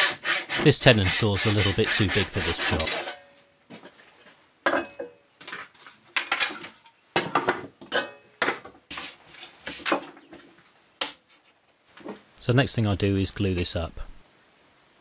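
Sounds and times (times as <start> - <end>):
wood and tools knocking on workbench: 7.2 - 8.8.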